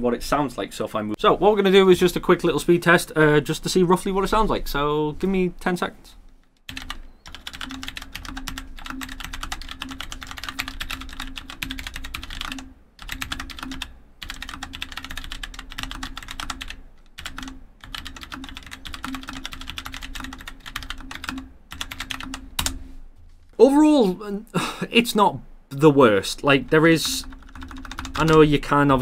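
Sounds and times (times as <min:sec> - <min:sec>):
mechanical keyboard typing: 0:06.7 - 0:22.8, 0:27.0 - 0:28.5.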